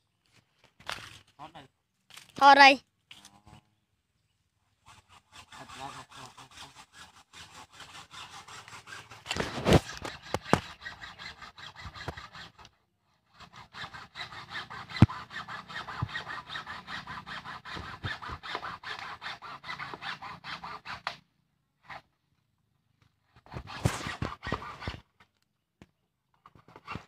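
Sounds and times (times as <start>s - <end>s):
hand saw cutting bamboo: 4.8s - 22.0s, 23.3s - 25.1s, 26.4s - 27.0s.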